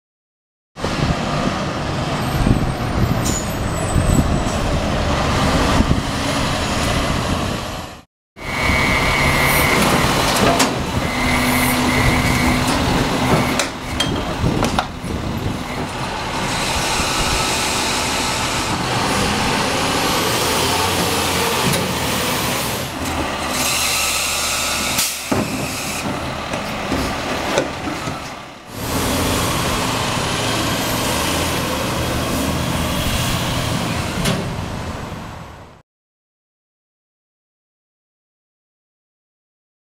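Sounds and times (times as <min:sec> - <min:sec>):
wind buffeting microphone: 0:00.8 - 0:07.8, 0:08.4 - 0:20.2
truck engine under load: 0:00.8 - 0:35.8
hydraulic whine: 0:08.4 - 0:26.8.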